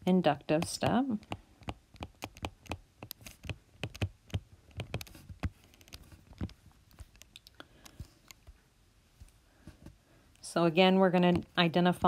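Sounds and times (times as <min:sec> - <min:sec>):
stylus tapping on tablet screen: 0:00.5 - 0:08.6.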